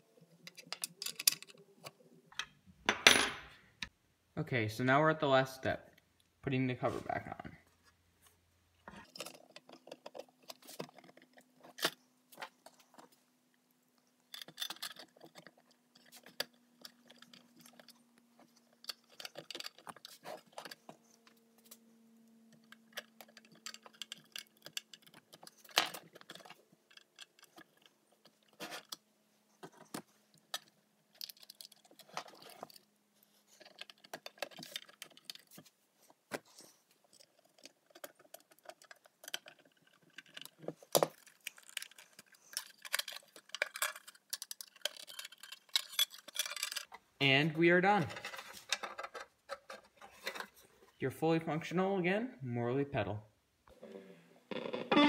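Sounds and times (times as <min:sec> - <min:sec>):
small clicks scrapes and rattles: 0:08.8 - 0:47.0, 0:48.1 - 0:50.7.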